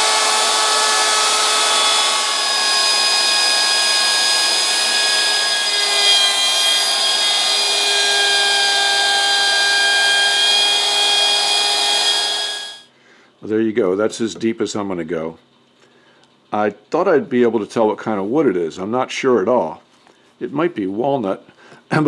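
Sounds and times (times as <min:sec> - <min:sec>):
router cutting into hardwood: 0:00.0 - 0:12.8.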